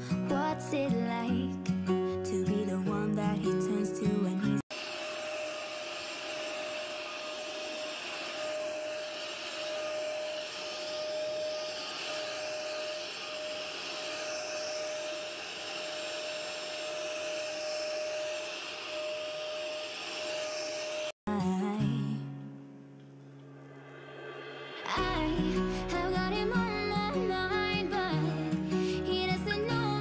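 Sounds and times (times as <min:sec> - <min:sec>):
carpet cleaner motor whining: 0:04.7 - 0:21.2.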